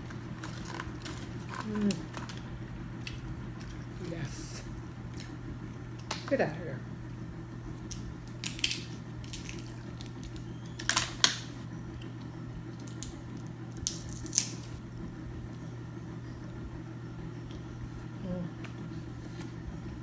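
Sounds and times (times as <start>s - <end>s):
crab shells cracking: 0.0s - 3.9s, 5.0s - 6.3s, 7.8s - 14.8s
steady low hum: 0.0s - 20.0s.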